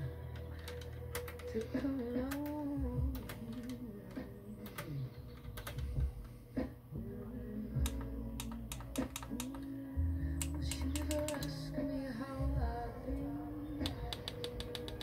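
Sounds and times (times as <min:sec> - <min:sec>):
push buttons clicking: 0:00.4 - 0:05.9, 0:07.8 - 0:09.7, 0:10.4 - 0:11.6.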